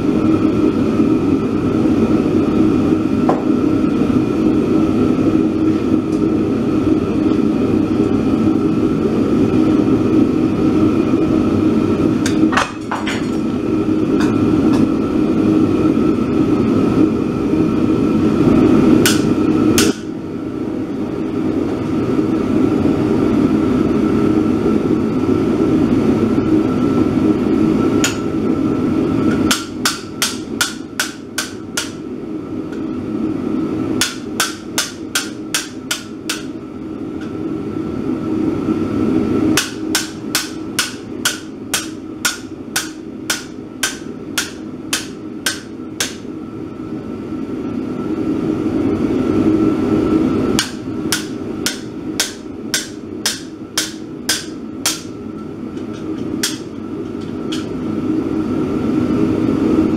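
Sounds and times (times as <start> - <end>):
hammer striking chisel on anvil: 19.0 - 20.1, 28.0 - 28.3, 29.3 - 32.0, 34.0 - 36.5, 39.6 - 46.2, 50.6 - 57.8.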